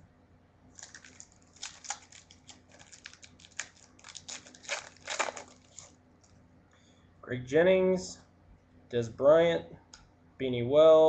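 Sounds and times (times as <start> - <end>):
foil pack tearing and crinkling: 0.8 - 6.0.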